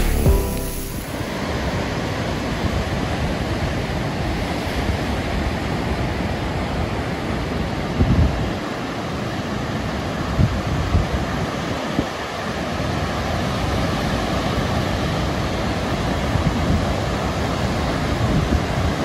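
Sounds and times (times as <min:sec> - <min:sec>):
ocean surf: 0:00.0 - 0:07.9.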